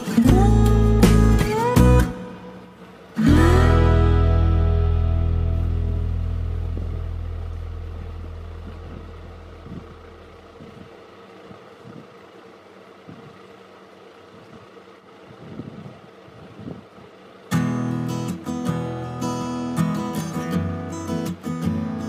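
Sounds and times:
acoustic guitar music: 0:00.0 - 0:11.5, 0:17.2 - 0:22.0.

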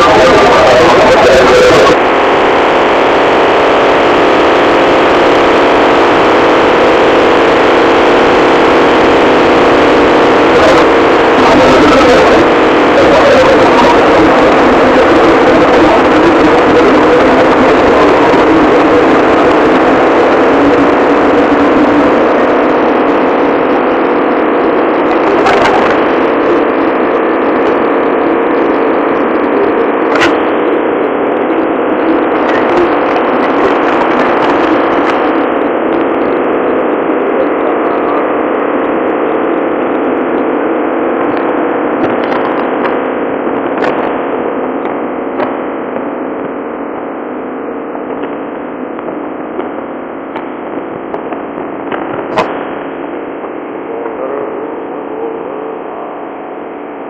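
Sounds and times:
propeller wake rushing: 0:00.0 - 0:53.9
ship engine drone: 0:00.0 - 0:57.0.

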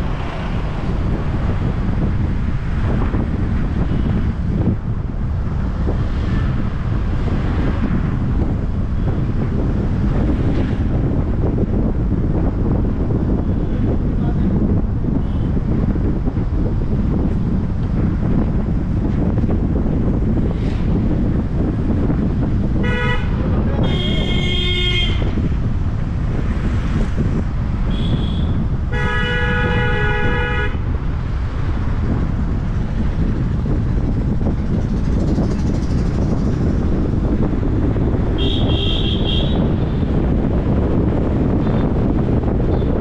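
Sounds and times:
road and wind rumble: 0:00.0 - 0:43.0
vehicle horns honking: 0:22.8 - 0:25.4, 0:27.8 - 0:30.8, 0:38.4 - 0:39.8.

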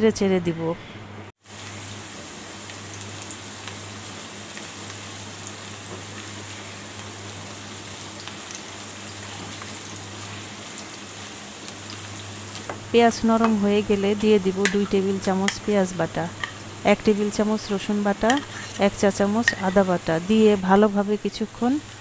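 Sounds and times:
onions sizzling in oil: 0:01.4 - 0:22.0
spatula stirring in pan: 0:13.4 - 0:20.2.

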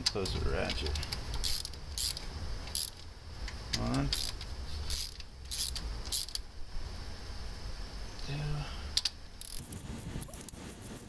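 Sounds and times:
ratchet wrench clicking: 0:00.0 - 0:03.1, 0:03.7 - 0:06.5, 0:09.0 - 0:09.7.

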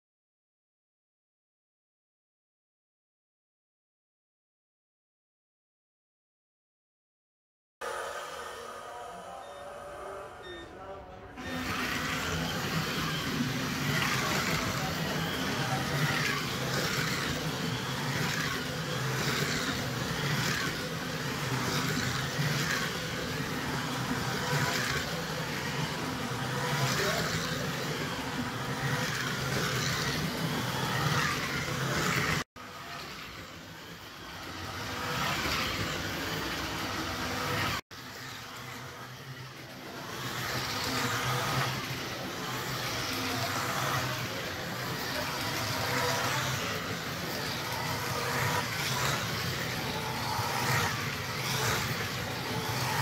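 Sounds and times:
slot car motors whining: 0:07.8 - 0:53.0.

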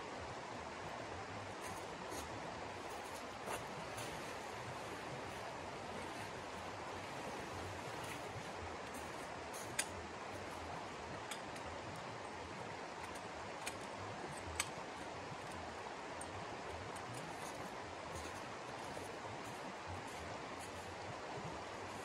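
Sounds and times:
water rushing in stream: 0:00.1 - 0:22.0.

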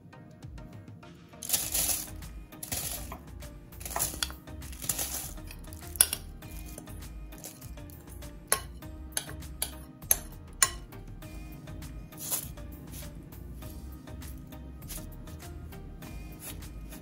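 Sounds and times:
soft background music: 0:00.0 - 0:17.0
crumbs rustling onto paper: 0:01.4 - 0:03.2, 0:03.8 - 0:05.9.

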